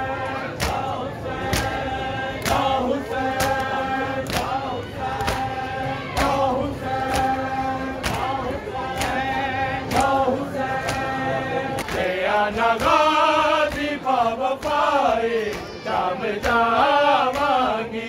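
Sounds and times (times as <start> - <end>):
men chanting a lament: 0.0 - 18.0
hands slapping chests: 0.5 - 1.8, 3.3 - 4.6, 5.2 - 5.6, 8.0 - 9.2.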